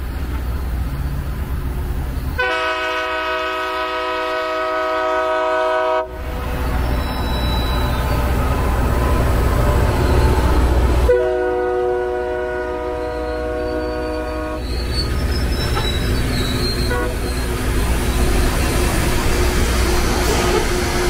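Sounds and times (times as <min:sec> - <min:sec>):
train rumbling past: 0:00.0 - 0:21.0
train air horn chord: 0:02.4 - 0:06.2, 0:11.0 - 0:14.6
rail grinding: 0:05.0 - 0:21.0.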